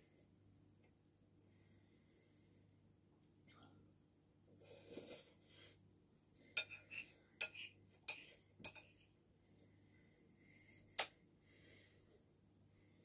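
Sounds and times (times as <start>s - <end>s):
cutlery scraping ceramic bowl: 6.5s - 9.1s.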